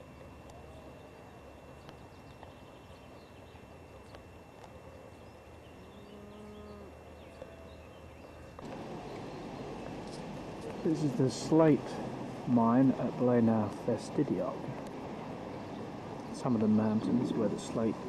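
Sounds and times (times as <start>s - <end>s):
bird chirps: 0.7s - 4.2s
farm animal call: 5.3s - 8.1s.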